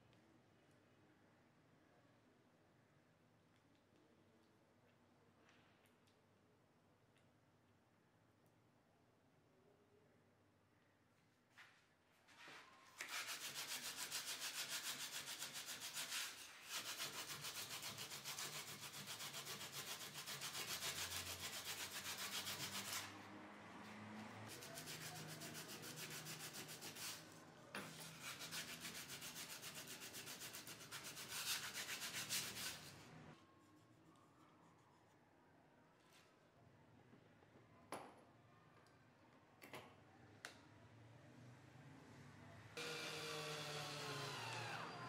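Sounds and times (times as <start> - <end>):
sandpaper rubbing on wood: 13.0 - 23.2, 24.5 - 33.0.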